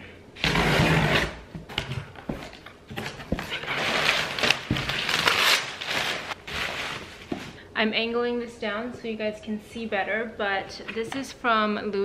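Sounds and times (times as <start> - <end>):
packing paper rustling: 2.3 - 7.6
bubble wrap crinkling: 3.1 - 7.6.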